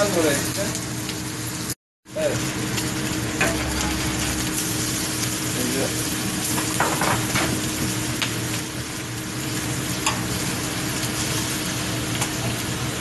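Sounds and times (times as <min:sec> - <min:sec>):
food sizzling on griddle: 0:00.0 - 0:13.0
low hum: 0:02.3 - 0:06.4.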